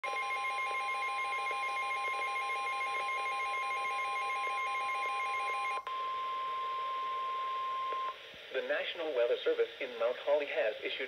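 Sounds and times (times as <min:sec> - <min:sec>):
steady warning alarm tone: 0:00.0 - 0:08.2.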